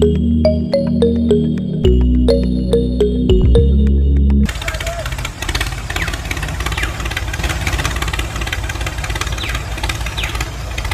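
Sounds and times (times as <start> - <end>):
tractor engine idling: 3.1 - 10.9.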